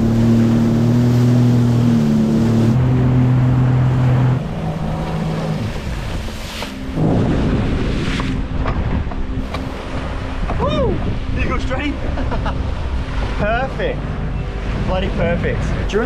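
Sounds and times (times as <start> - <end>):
churning water rushing: 0.0 - 16.0
jet ski engine drone: 0.0 - 16.0
wind on microphone: 2.6 - 13.4.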